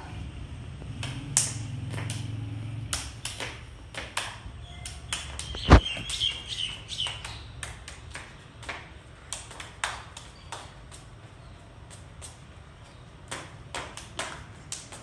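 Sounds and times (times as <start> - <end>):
child's hand claps: 2.9 - 6.2.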